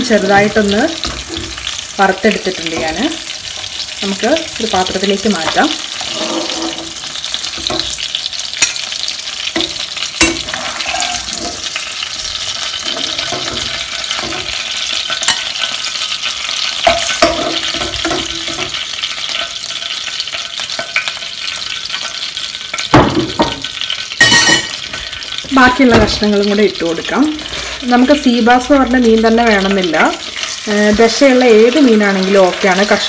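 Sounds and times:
oil sizzling in a pan: 0:00.0 - 0:33.0
spatula clicking and scraping pan: 0:02.6 - 0:22.9.

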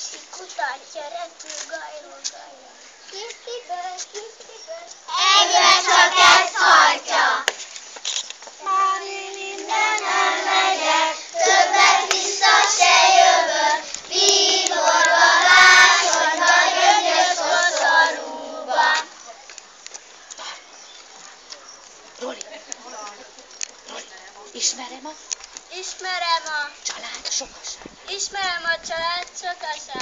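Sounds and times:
children singing in chorus: 0:05.1 - 0:07.5, 0:08.6 - 0:19.1.

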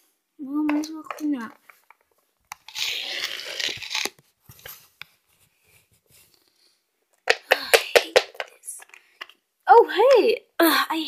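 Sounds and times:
rustling and crinkling: 0:00.0 - 0:07.4.

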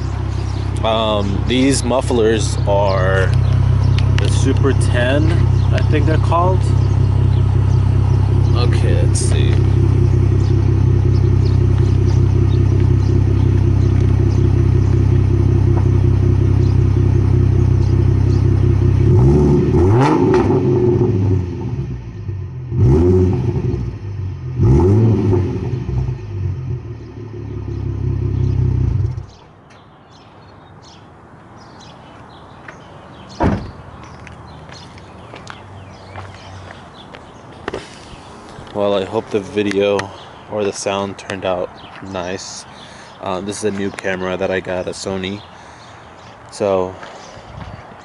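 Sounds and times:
car engine idling and revving: 0:00.0 - 0:29.4.

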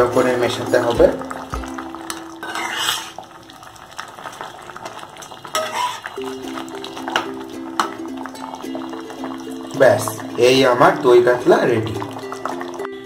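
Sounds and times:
spatula scraping a pan: 0:02.4 - 0:03.2, 0:05.5 - 0:06.2.

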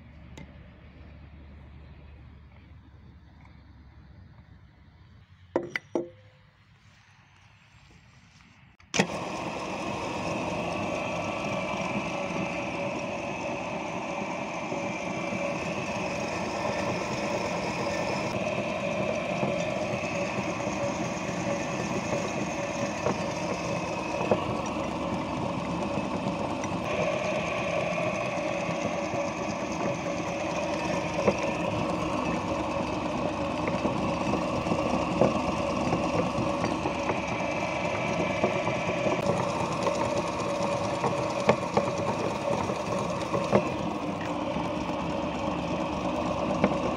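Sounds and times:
meat grinder whirring: 0:09.0 - 0:46.9.

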